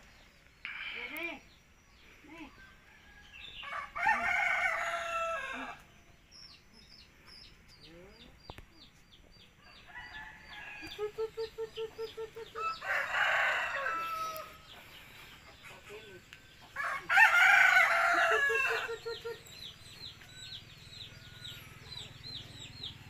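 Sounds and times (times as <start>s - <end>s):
rooster crowing: 2.9s - 5.8s, 12.5s - 14.8s, 16.8s - 19.4s.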